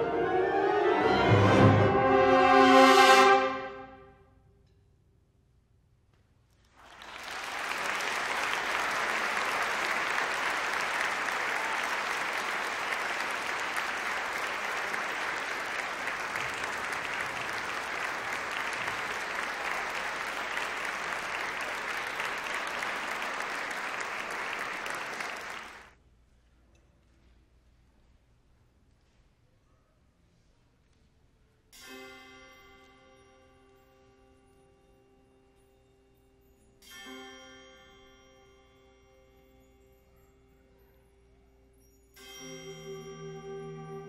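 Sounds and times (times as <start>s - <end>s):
audience applauding: 6.7s - 25.9s.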